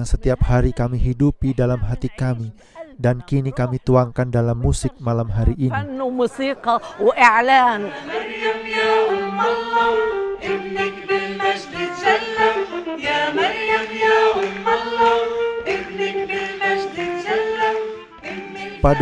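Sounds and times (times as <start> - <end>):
choir singing: 7.2 - 19.0.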